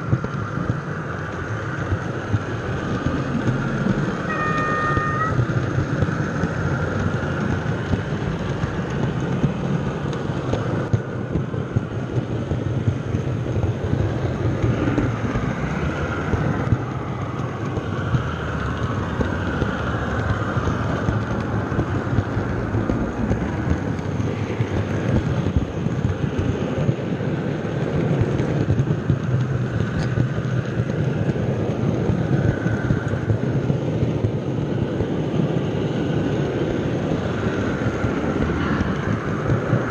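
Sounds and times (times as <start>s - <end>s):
model train wheels rattling on rails: 0.0s - 39.9s
high-pitched wheel squeal: 4.2s - 5.5s.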